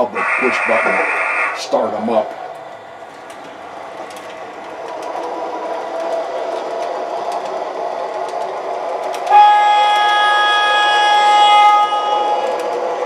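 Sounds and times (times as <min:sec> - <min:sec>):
model streetcar running: 0:00.0 - 0:13.0
horn chord: 0:09.3 - 0:12.6.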